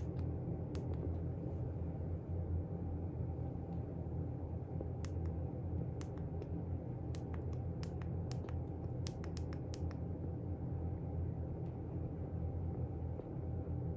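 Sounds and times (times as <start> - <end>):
steady low hum: 0.0 - 13.9
small sharp clicks: 6.0 - 10.1.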